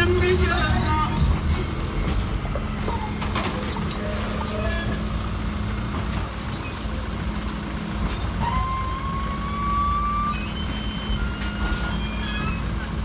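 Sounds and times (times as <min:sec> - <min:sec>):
truck engine humming: 0:00.0 - 0:13.0.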